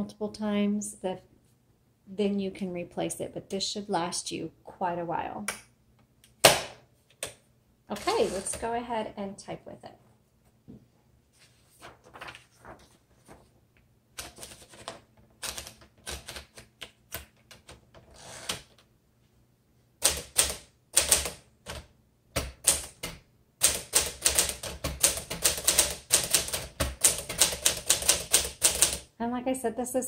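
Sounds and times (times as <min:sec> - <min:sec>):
typewriter typing: 0:14.2 - 0:18.8, 0:20.0 - 0:29.1.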